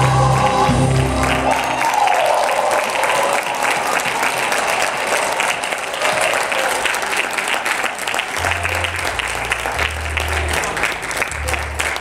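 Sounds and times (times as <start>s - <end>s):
music playing: 0.0s - 2.0s, 8.4s - 12.0s
congregation applauding: 0.0s - 12.0s.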